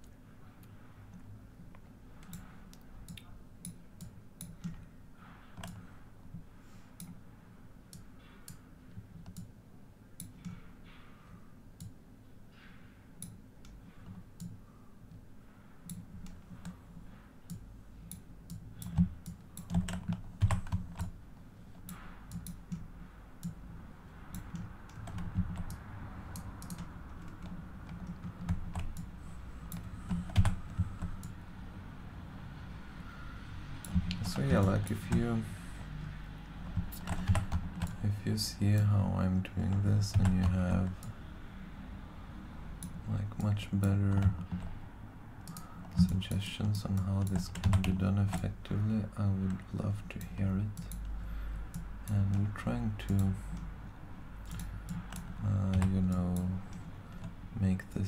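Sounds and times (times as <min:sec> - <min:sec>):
mouse and keyboard clicking: 0:24.3 - 0:29.1, 0:36.7 - 0:38.0.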